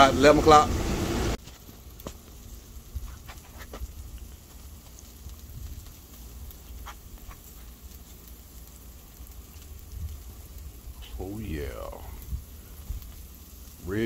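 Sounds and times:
meat crackling on grill: 0:00.0 - 0:14.0
steady low rumble: 0:00.0 - 0:14.0
sharp pops: 0:01.4 - 0:02.4, 0:05.7 - 0:08.0.

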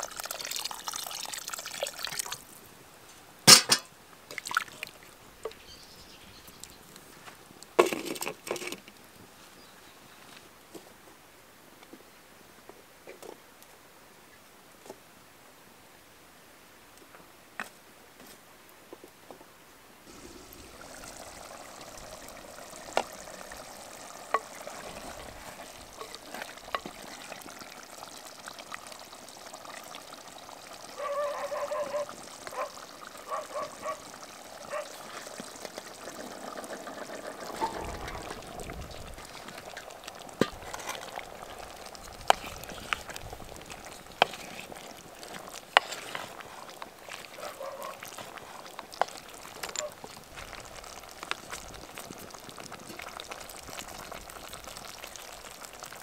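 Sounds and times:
liquid hissing and simmering: 0:00.0 - 0:09.8, 0:20.0 - 0:56.0
wooden spoon stirring in pot: 0:20.1 - 0:56.0.

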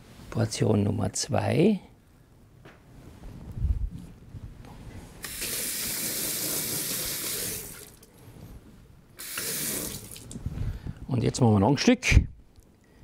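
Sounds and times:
kitchen tap running: 0:05.2 - 0:08.1, 0:09.2 - 0:10.4.

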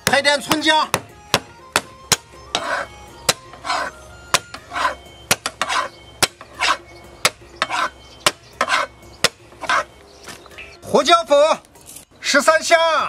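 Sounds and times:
short scraping swishes: 0:02.6 - 0:04.0, 0:04.6 - 0:06.8, 0:07.6 - 0:08.0, 0:08.6 - 0:08.9.

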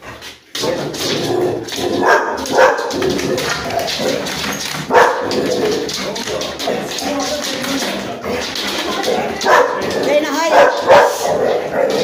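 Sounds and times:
dog barking: 0:02.0 - 0:03.0, 0:04.9 - 0:05.3, 0:09.4 - 0:09.8, 0:10.5 - 0:12.0.

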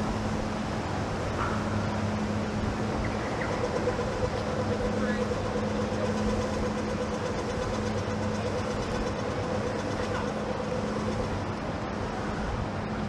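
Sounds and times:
low mechanical hum: 0:00.0 - 0:13.0
high steady tone: 0:01.8 - 0:11.5.

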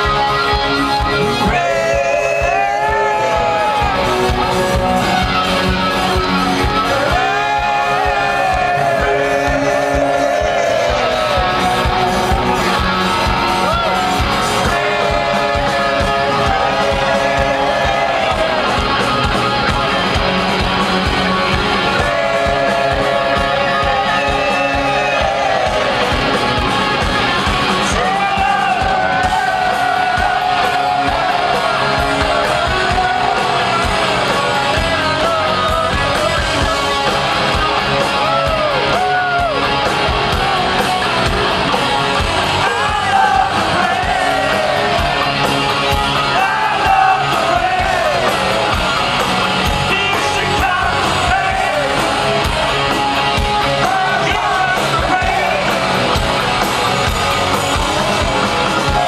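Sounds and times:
bass: 0:00.0 - 0:59.0
drums: 0:00.0 - 0:59.0
electric guitars: 0:00.0 - 0:59.0
man singing: 0:01.2 - 0:04.0, 0:06.8 - 0:12.0, 0:27.8 - 0:37.1, 0:49.8 - 0:52.1, 0:53.7 - 0:55.8.

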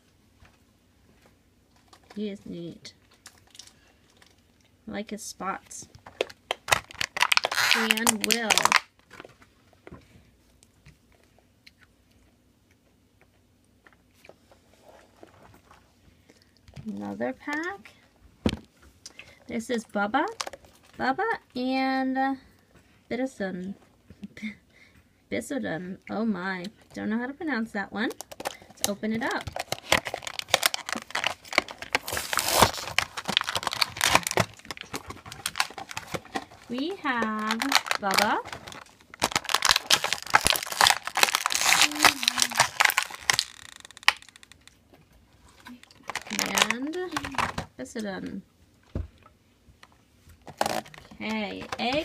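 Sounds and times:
plastic blister pack crinkling: 0:03.0 - 0:04.4, 0:06.0 - 0:09.3, 0:20.2 - 0:20.9, 0:28.1 - 0:44.8, 0:45.6 - 0:47.6, 0:50.4 - 0:52.0
plastic ripping: 0:06.1 - 0:09.3, 0:28.2 - 0:44.8, 0:45.6 - 0:47.6, 0:50.4 - 0:52.0.

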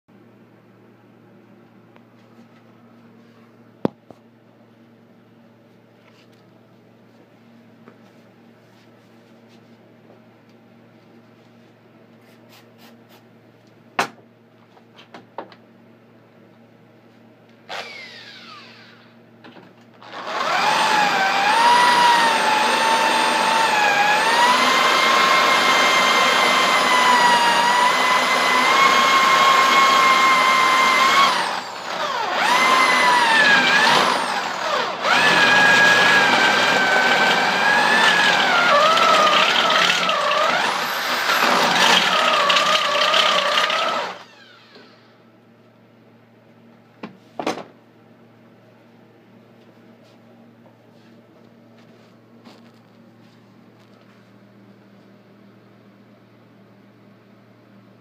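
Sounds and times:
electric drill whining: 0:17.7 - 0:19.2, 0:20.0 - 0:45.2.

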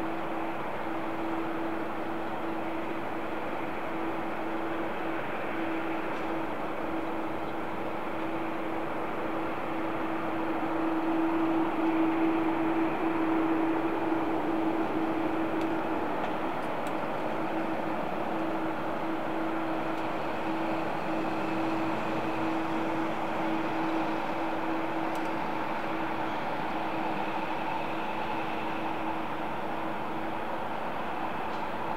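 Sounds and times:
jet engines humming: 0:00.0 - 0:31.9.

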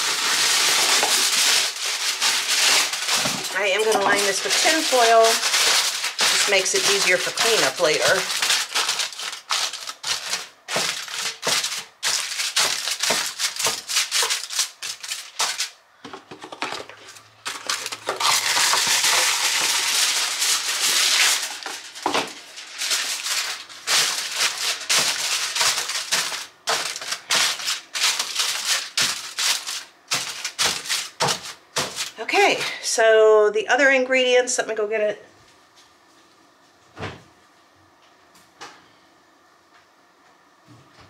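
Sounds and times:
foil pulled from roll rustling: 0:00.0 - 0:15.8, 0:16.9 - 0:32.2
aluminium foil crinkling: 0:00.0 - 0:32.3.

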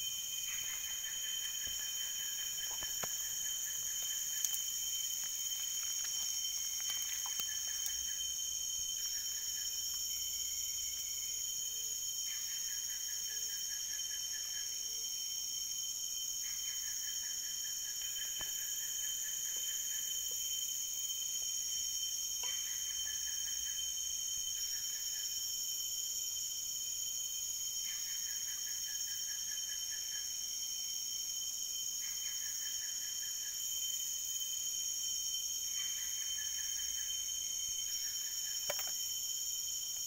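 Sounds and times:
insects buzzing: 0:00.0 - 0:40.0
low pulsed insect trill: 0:00.0 - 0:40.0.

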